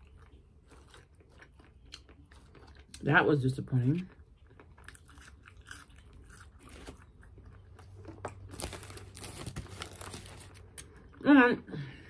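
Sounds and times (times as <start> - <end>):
person chewing food: 0.0 - 11.2.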